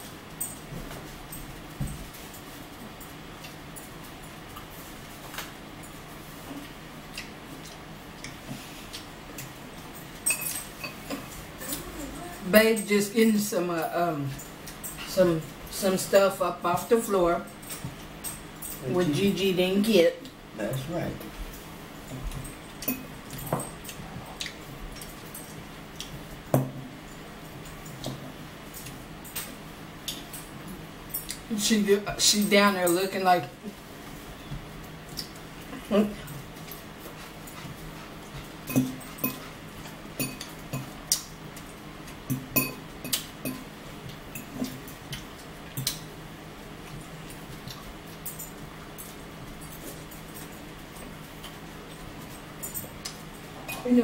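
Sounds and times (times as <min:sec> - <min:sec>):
chewing: 0:06.4 - 0:10.0, 0:22.1 - 0:26.3, 0:34.9 - 0:42.3, 0:46.8 - 0:53.8
fork clinking and scraping in bowl: 0:10.2 - 0:11.4, 0:38.6 - 0:39.6, 0:40.2 - 0:41.0, 0:42.3 - 0:43.7.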